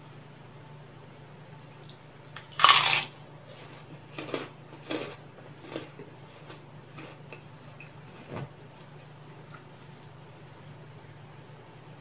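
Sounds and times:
cracker crunching: 0:01.8 - 0:07.9.

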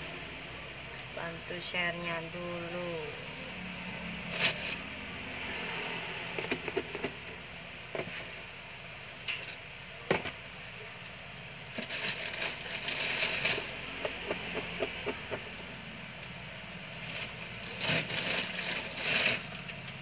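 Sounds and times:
paper rustling: 0:17.0 - 0:19.7.

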